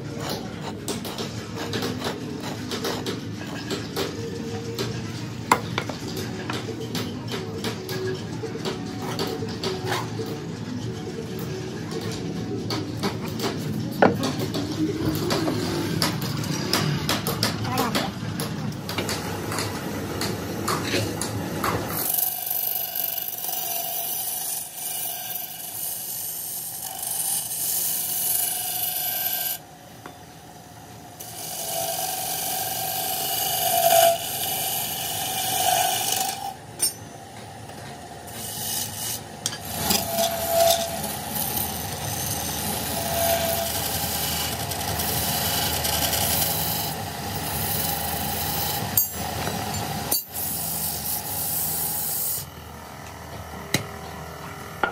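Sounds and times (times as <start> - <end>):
chisel scraping spinning wood: 0.0 - 3.8, 31.2 - 37.0, 38.3 - 52.5
wood lathe running: 22.0 - 29.6, 31.2 - 36.6, 38.3 - 53.6.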